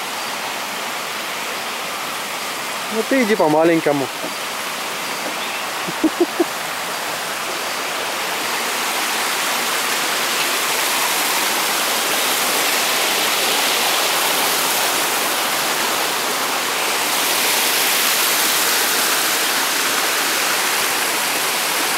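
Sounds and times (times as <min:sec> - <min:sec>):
stream rushing over rocks: 0:00.0 - 0:21.9.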